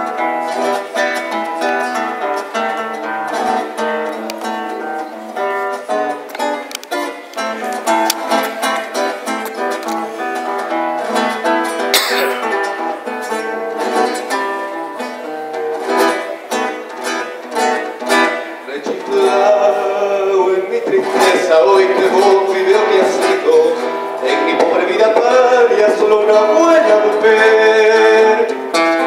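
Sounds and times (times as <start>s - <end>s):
classical guitar playing: 0.0s - 29.0s.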